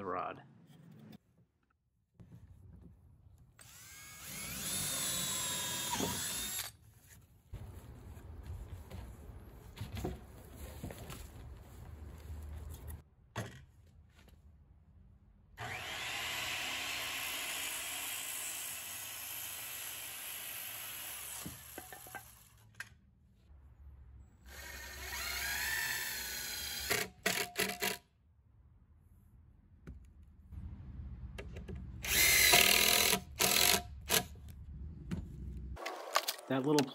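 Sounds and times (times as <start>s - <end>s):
cordless drill driving screws: 3.6s - 6.8s, 15.6s - 21.7s, 24.5s - 28.0s, 32.0s - 34.3s.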